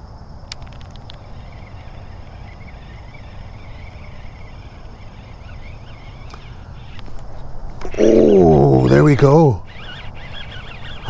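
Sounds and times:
fishing reel clicks: 0.5s - 7.2s
fishing reel whine: 0.5s - 11.0s.

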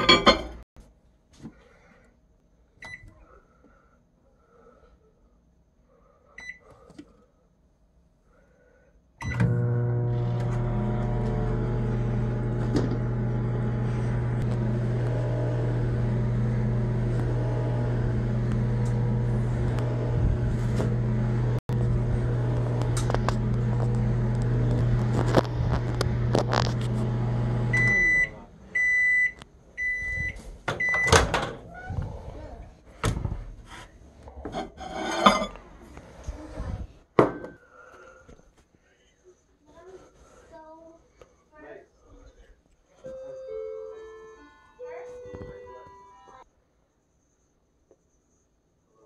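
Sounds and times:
microwave end beeps: 9.2s - 10.5s, 27.6s - 31.3s
microwave oven humming: 9.2s - 29.1s
microwave keypad beeping: 27.7s - 31.3s.

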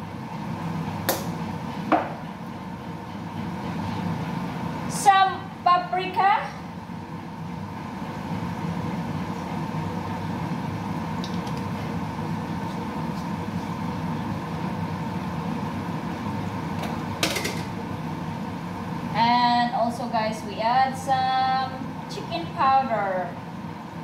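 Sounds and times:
steady mechanical hum: 0.0s - 24.0s.

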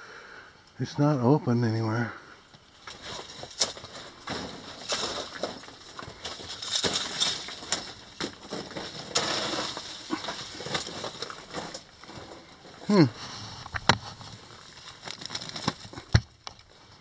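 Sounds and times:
stones clicking underfoot: 2.5s - 17.0s
footsteps on gravel: 2.7s - 13.0s.

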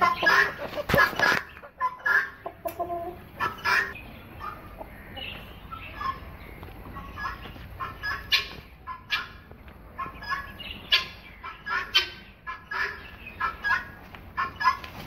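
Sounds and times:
fowl calling: 0.0s - 6.2s.

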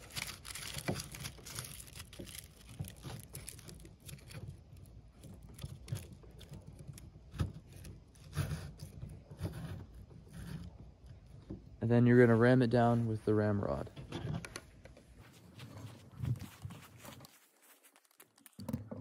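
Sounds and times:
aluminum foil crinkling: 0.0s - 9.0s, 16.4s - 19.0s.

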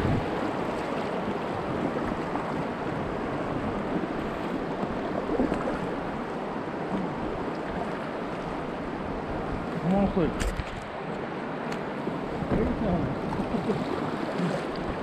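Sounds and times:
wind on microphone: 0.0s - 6.2s
river water rushing and splashing: 0.0s - 15.0s.

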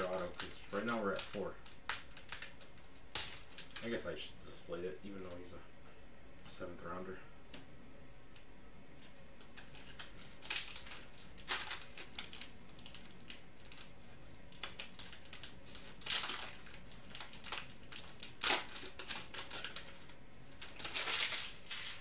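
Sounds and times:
foil pack crinkling and tearing: 0.0s - 4.1s, 9.4s - 22.0s.

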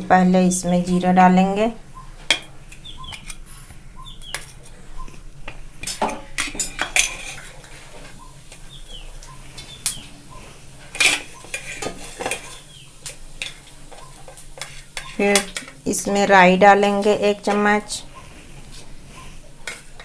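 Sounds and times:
faint high chirps: 1.9s - 5.2s, 8.2s - 10.5s, 13.9s - 14.2s.

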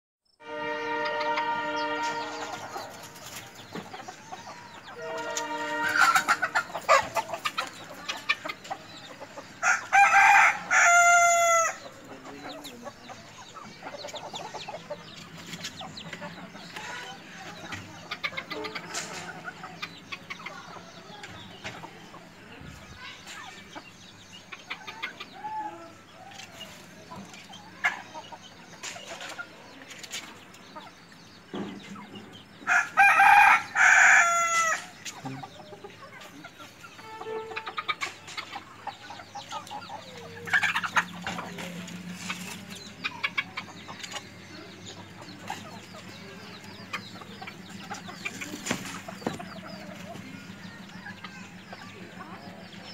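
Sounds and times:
chickens clucking: 0.4s - 52.9s
rooster crowing: 9.6s - 11.8s, 32.7s - 34.9s.

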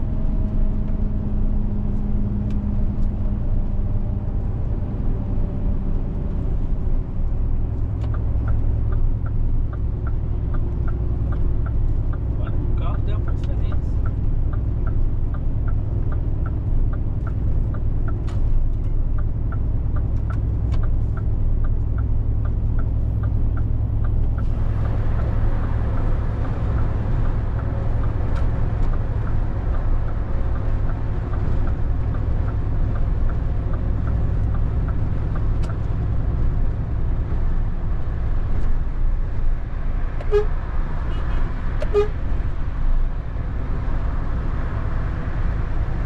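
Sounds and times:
diesel engine and road drone: 0.0s - 46.0s
light regular ticking: 7.7s - 39.0s.

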